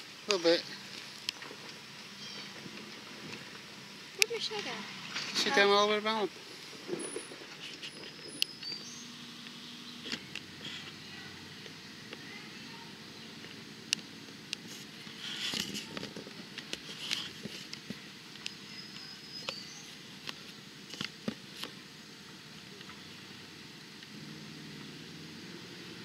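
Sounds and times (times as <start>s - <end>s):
tyres crackling over dirt and rocks: 0.2s - 9.0s
vehicle engine running low: 21.7s - 26.0s.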